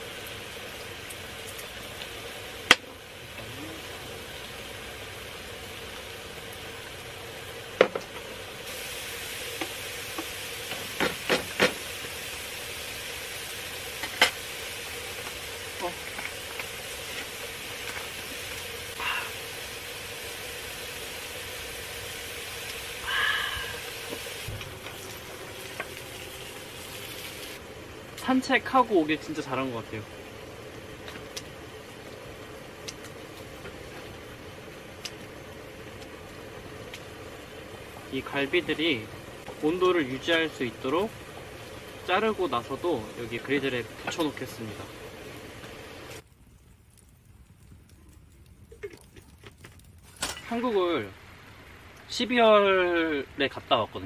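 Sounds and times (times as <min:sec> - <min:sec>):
meat sizzling on a griddle: 0:00.0 - 0:46.3.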